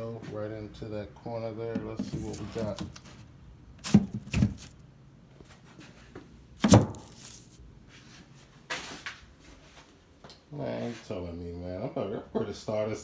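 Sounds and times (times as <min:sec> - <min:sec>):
rustling scrape: 0:01.9 - 0:04.8, 0:06.9 - 0:09.9.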